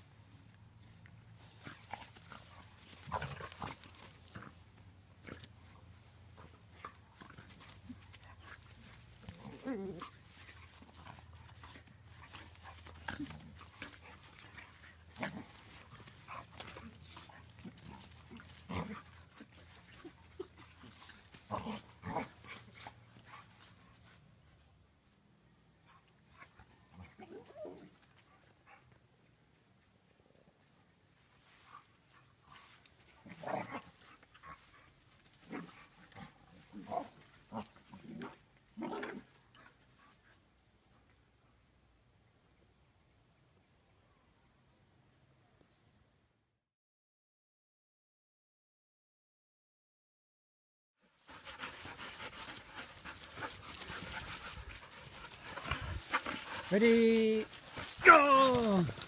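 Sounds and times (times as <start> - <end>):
dogs growling: 1.4 - 23.4, 35.4 - 39.6, 51.3 - 59.0
dogs scuffling: 51.3 - 59.0.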